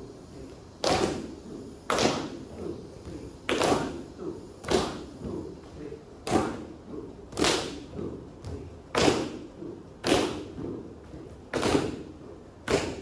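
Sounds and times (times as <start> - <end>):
light footfalls: 7.3 - 13.0.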